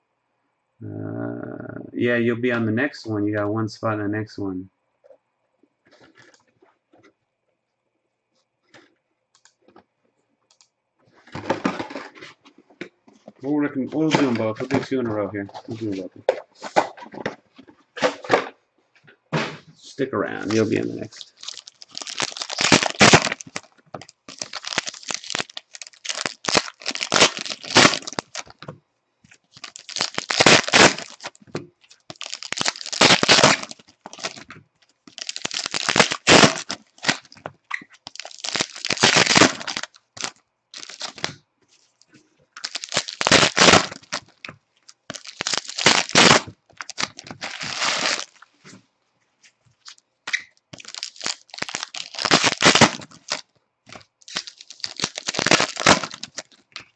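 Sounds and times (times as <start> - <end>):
foil wrappers tearing and crinkling: 20.5 - 28.6, 29.5 - 34.5, 35.1 - 41.4, 42.6 - 48.4, 49.9 - 56.9.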